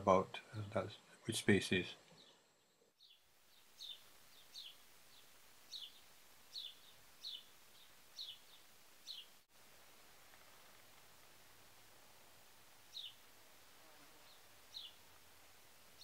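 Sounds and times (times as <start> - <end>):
quiet outdoor hiss: 0.0 - 16.0
small bird chirping: 2.0 - 9.4, 12.9 - 13.3, 14.2 - 15.1.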